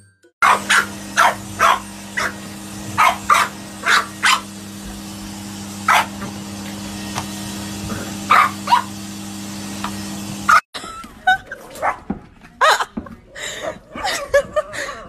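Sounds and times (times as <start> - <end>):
puppy yapping: 0.4 - 2.4, 3.0 - 4.4, 8.3 - 8.9
vacuum cleaner motor droning: 0.4 - 10.6.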